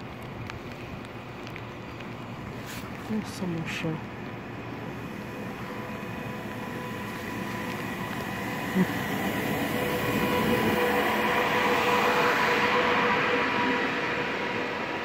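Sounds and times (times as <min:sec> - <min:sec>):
steady whine: 0:03.9 - 0:15.0
train running past: 0:04.0 - 0:15.0.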